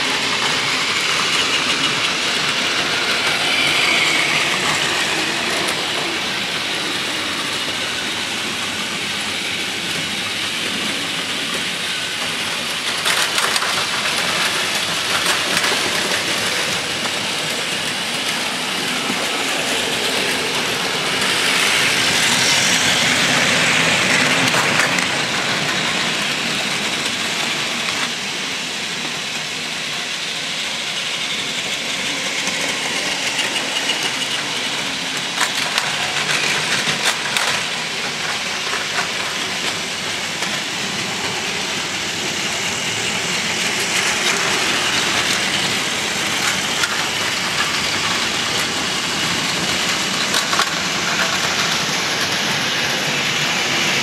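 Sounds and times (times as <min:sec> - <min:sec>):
toy train motors whirring: 0:00.0 - 0:54.0
wheels rattling over plastic track: 0:09.9 - 0:28.1, 0:32.0 - 0:54.0.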